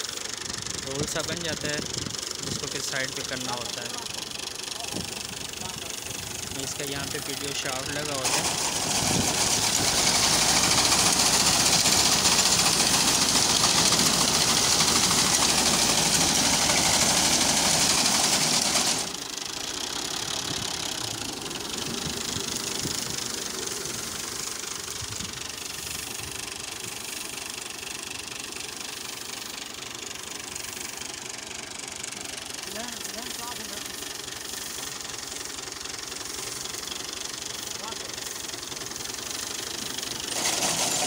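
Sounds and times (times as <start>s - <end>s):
tractor diesel engine running: 0.0s - 41.0s
strong hiss: 4.9s - 19.2s.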